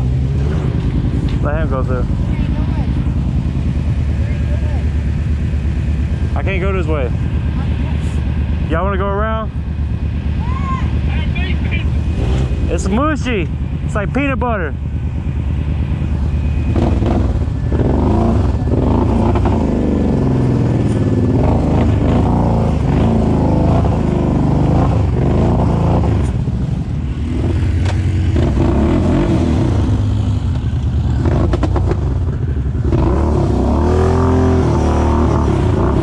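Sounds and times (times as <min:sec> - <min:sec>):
quad bike engine revving: 0:10.4 - 0:14.9, 0:15.7 - 0:36.0.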